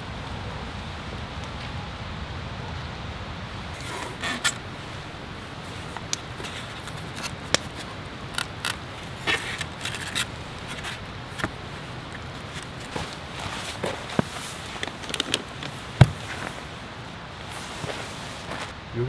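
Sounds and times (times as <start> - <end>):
chopsticks clicking and scraping: 6.0 - 11.5.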